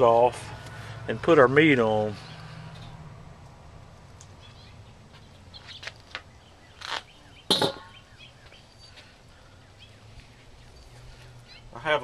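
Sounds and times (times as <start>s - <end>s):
birds chirping faintly: 3.9s - 12.0s
metal clank: 7.5s - 8.0s
metal lid clattering: 7.5s - 8.0s.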